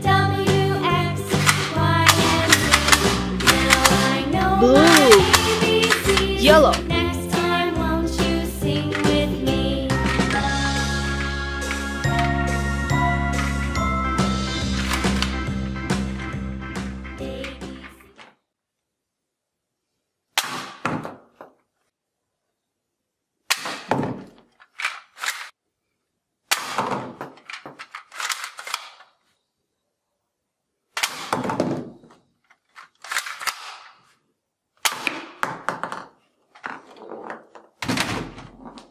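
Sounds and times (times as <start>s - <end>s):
toy bowling pins clattering: 1.2s - 7.6s, 8.3s - 13.8s, 14.5s - 15.5s, 24.1s - 25.6s, 26.8s - 29.2s, 31.0s - 34.1s, 35.0s - 38.9s
plastic toy guns clacking: 1.3s - 7.0s, 8.9s - 9.3s, 10.0s - 10.4s, 14.8s - 15.4s, 23.5s - 25.6s, 26.5s - 29.2s, 30.9s - 34.1s, 34.8s - 38.1s.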